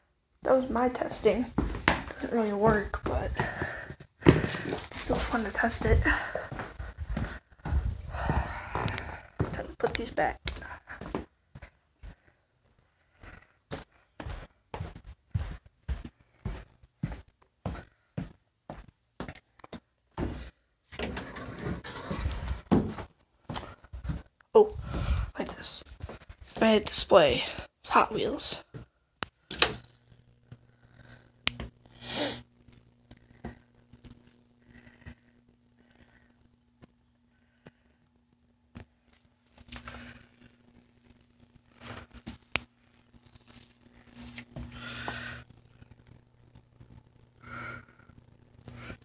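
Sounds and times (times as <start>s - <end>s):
faint steady hum: 0.0s - 49.0s
shoes knocking: 1.6s - 5.2s.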